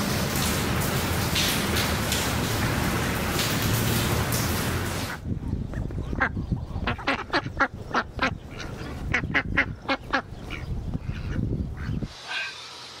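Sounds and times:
ducks quacking: 0:05.8 - 0:12.6.

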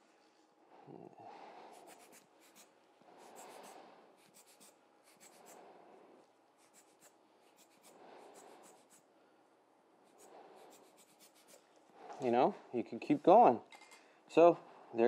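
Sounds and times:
soft puffs of air from bulb blower: 0:01.2 - 0:09.2, 0:10.0 - 0:12.4.

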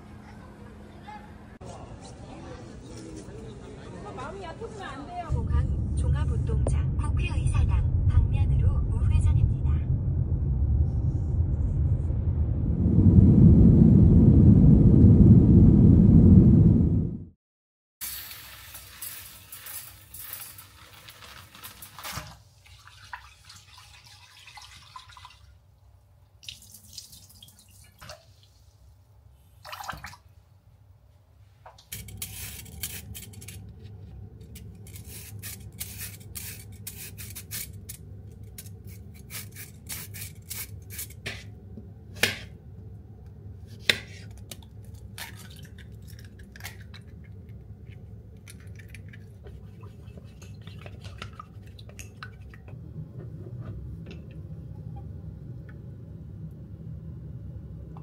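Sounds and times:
steady low hum: 0:05.0 - 0:17.3, 0:30.6 - 0:58.0
water dripping: 0:22.6 - 0:25.6, 0:26.4 - 0:28.6, 0:29.6 - 0:30.3.

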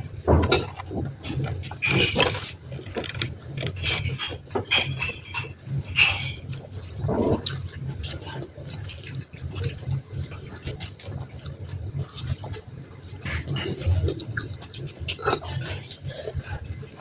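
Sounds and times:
low steady hum: 0:00.0 - 0:17.0
slurping noodles: 0:07.0 - 0:07.6.

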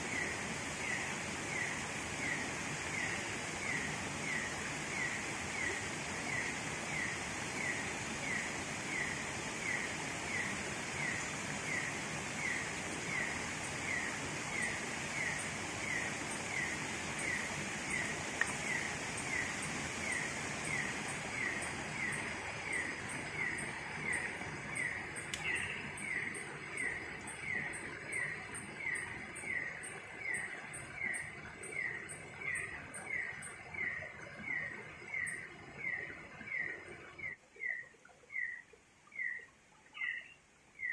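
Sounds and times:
running water: 0:00.0 - 0:40.9
sharp tick: 0:25.2 - 0:25.6.

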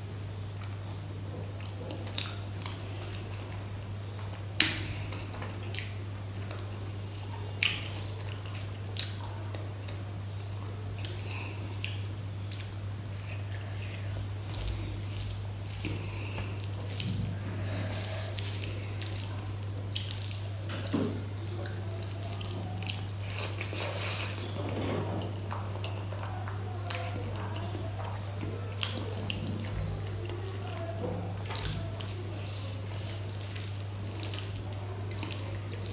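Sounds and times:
steady low hum: 0:00.0 - 0:35.9
wet squelching of fingers mixing food: 0:00.0 - 0:35.9
person eating a mouthful: 0:22.8 - 0:24.6.

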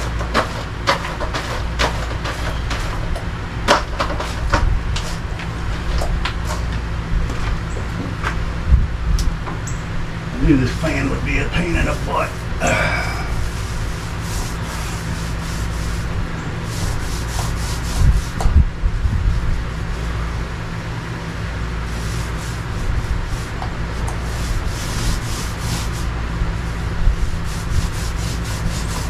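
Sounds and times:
paint roller rasping: 0:00.0 - 0:03.1, 0:10.4 - 0:18.6, 0:21.5 - 0:29.0
steady low hum: 0:00.0 - 0:29.0.

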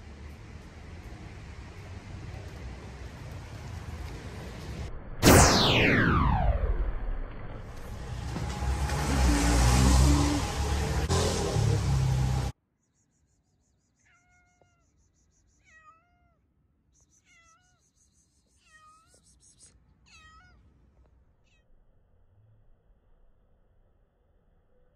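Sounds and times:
cat meowing faintly: 0:14.0 - 0:15.0, 0:15.6 - 0:16.5, 0:20.0 - 0:21.8.

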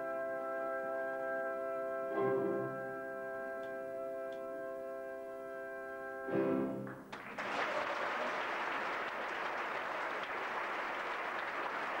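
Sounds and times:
audience applauding: 0:06.8 - 0:12.0.

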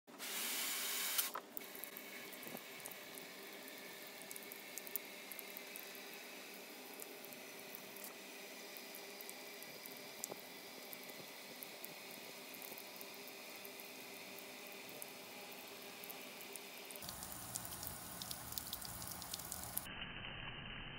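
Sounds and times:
sharp drip clicks: 0:17.0 - 0:19.9
water splashing: 0:17.0 - 0:19.9.

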